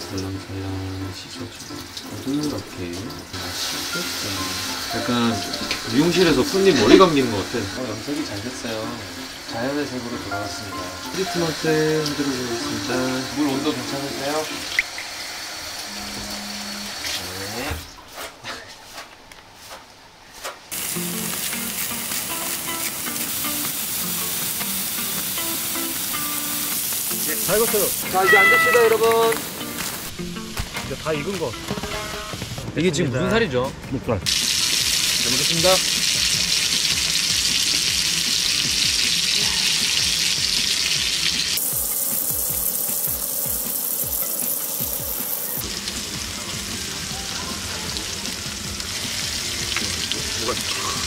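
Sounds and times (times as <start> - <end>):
meat sizzling on a griddle: 0.0 - 16.1, 20.7 - 32.4, 34.3 - 51.0
tap water running: 0.0 - 17.8, 20.7 - 32.6, 34.3 - 51.0
music with low beat: 44.8 - 51.0.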